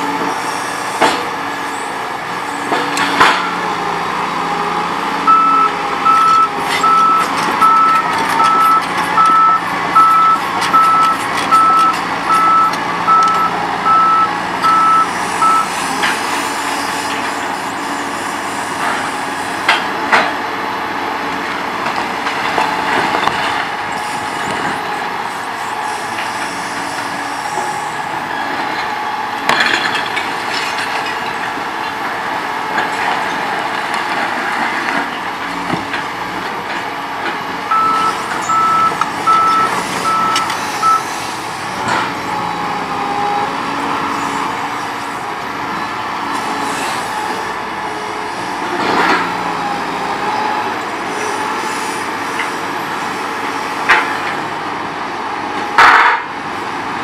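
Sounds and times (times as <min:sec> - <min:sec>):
excavator diesel engine running: 0:00.0 - 0:57.0
reversing alarm beeping: 0:05.2 - 0:15.9, 0:37.7 - 0:41.2.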